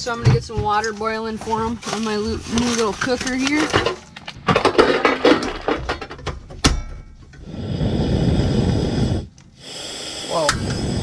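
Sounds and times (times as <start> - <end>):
gas flame rushing: 7.4 - 11.0.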